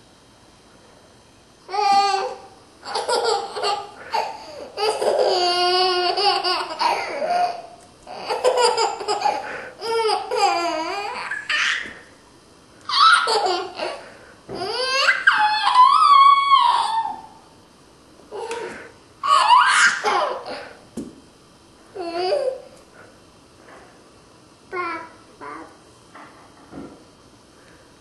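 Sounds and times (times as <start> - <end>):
baby laughing: 1.7 - 11.9, 12.9 - 14.0, 14.6 - 17.2, 19.2 - 20.6.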